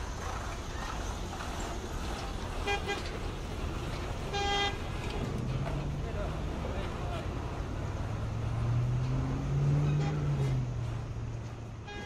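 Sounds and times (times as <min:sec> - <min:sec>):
vehicle horn honking: 0:02.6 - 0:03.2, 0:04.3 - 0:04.9, 0:09.8 - 0:10.6, 0:11.8 - 0:12.0.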